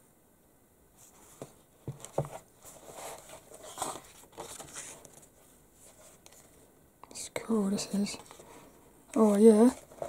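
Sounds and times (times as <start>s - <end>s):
magazine pages turning: 2.0s - 6.6s, 9.2s - 10.0s.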